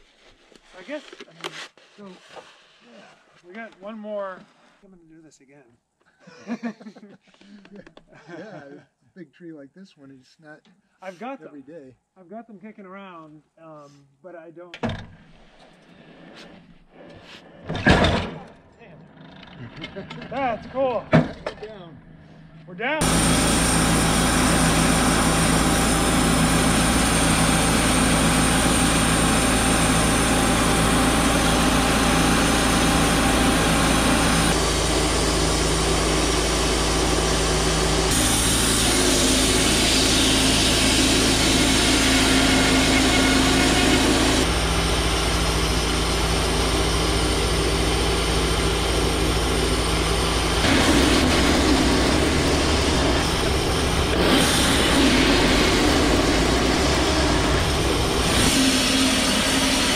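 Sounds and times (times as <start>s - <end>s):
bandsaw mill engine under load: 23.0s - 59.9s
band blade cutting log: 50.6s - 59.9s.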